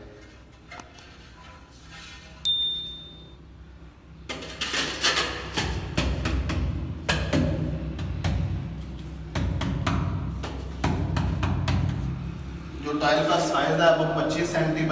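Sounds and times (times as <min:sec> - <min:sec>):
electronic bell ding: 0:02.4 - 0:03.4.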